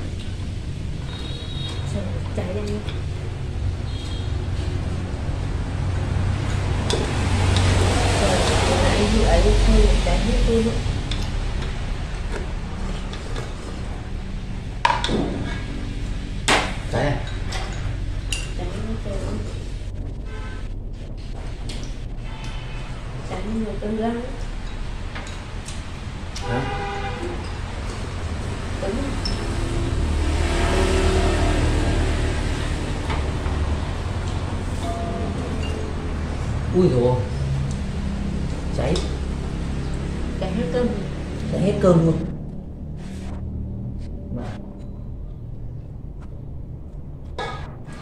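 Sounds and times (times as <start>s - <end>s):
steady low hum: 0.0s - 26.5s
vehicle engine passing: 0.0s - 48.0s.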